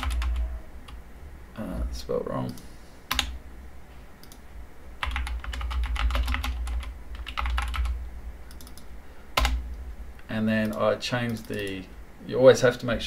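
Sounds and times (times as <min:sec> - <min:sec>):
computer keyboard typing: 0:00.0 - 0:01.0, 0:02.5 - 0:03.4, 0:05.0 - 0:09.6, 0:10.6 - 0:11.9.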